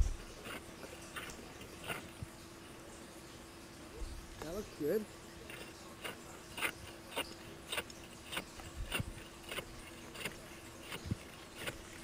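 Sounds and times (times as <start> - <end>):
hand saw cutting ice: 0.4 - 2.1, 5.5 - 12.0.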